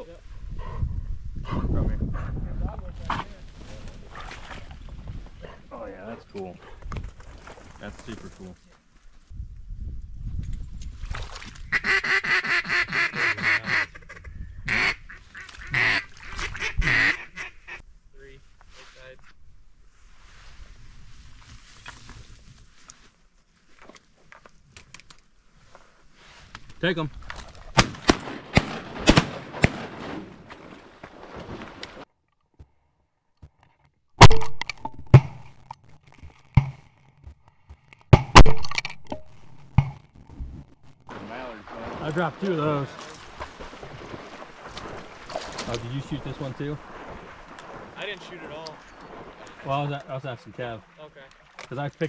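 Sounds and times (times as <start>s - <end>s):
duck quacking: 11.7s - 17.8s
shotguns firing: 27.8s - 30.5s.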